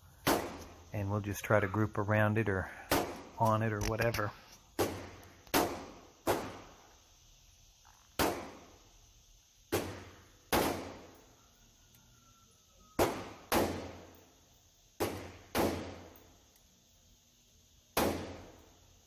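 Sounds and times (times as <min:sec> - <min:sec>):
rifle shots: 0:04.8 - 0:06.7, 0:15.0 - 0:16.1.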